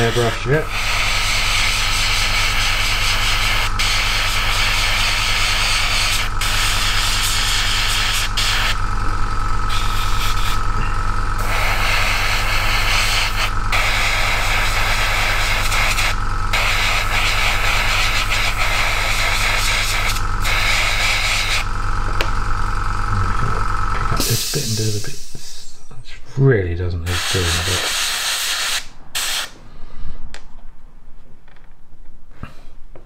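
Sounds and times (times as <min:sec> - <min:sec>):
airbrush spray hissing: 0:00.0 - 0:08.8, 0:09.6 - 0:10.7, 0:11.4 - 0:21.7, 0:24.2 - 0:25.7, 0:27.1 - 0:29.6
compressor humming: 0:00.0 - 0:31.0.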